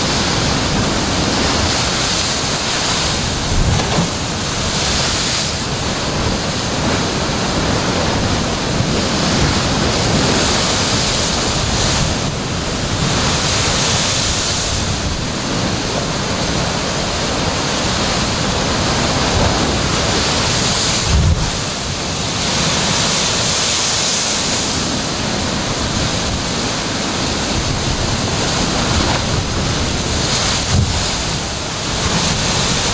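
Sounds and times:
surf crashing on rocks: 0:00.0 - 0:32.9
dull thumps: 0:03.5 - 0:04.4.

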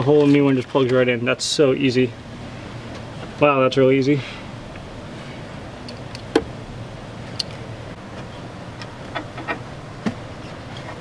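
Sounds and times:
steady low hiss: 0:00.0 - 0:11.0.

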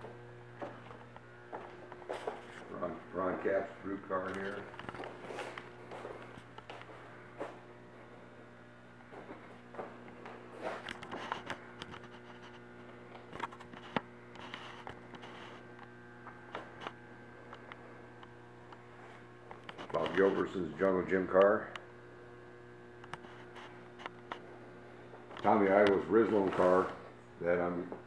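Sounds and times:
electrical mains hum: 0:00.0 - 0:28.0
faint clicks and rustles: 0:09.2 - 0:20.5.

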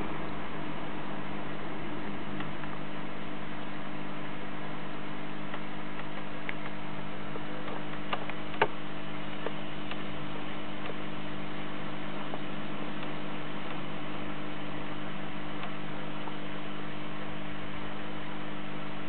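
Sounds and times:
low hum: 0:00.0 - 0:19.0
light clicks: 0:05.5 - 0:06.8.

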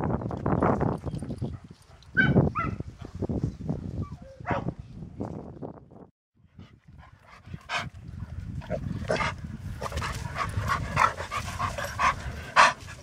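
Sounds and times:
wind rumble on microphone: 0:00.0 - 0:13.0
dogs barking and yapping: 0:01.4 - 0:03.2, 0:04.0 - 0:04.8, 0:08.7 - 0:13.0.

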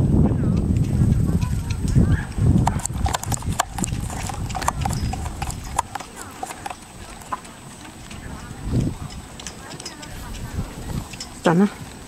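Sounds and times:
horse hoofbeats trotting: 0:00.4 - 0:12.0
carriage and harness clatter: 0:01.4 - 0:12.0.

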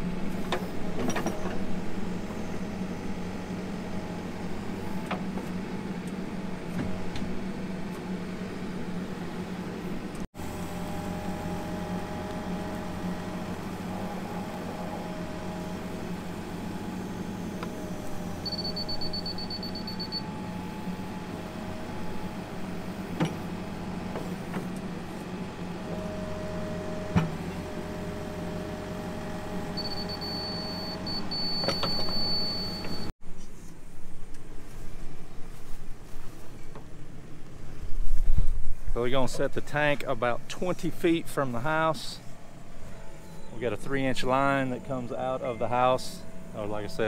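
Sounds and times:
backhoe diesel engine running: 0:00.0 - 0:33.1.

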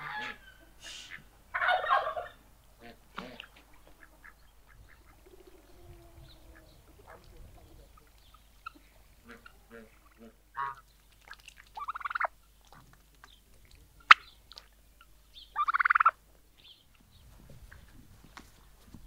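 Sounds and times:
turkey gobbling: 0:00.0 - 0:10.8, 0:11.8 - 0:12.4, 0:14.0 - 0:14.3, 0:15.5 - 0:16.2.

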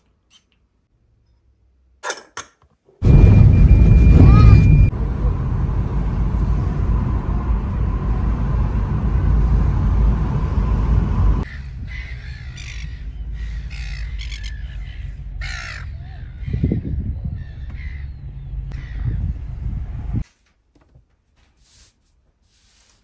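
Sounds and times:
road rumble inside moving car: 0:03.0 - 0:20.2
seagulls squawking: 0:11.4 - 0:19.2.

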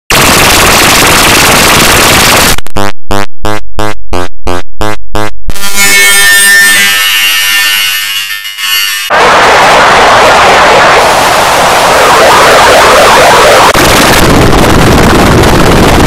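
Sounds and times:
loud harsh static: 0:00.1 - 0:03.2, 0:08.7 - 0:16.0
distorted beeps: 0:02.3 - 0:08.9, 0:12.1 - 0:13.8.

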